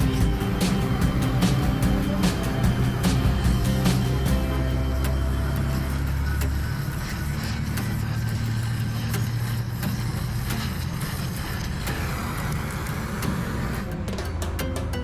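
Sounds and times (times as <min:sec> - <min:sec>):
low hum: 0:00.0 - 0:11.6
welding torch flame roaring: 0:00.0 - 0:13.9.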